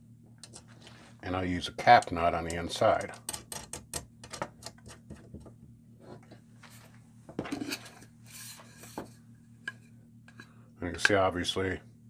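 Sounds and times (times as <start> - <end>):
brief scraping rub: 7.7 - 9.0.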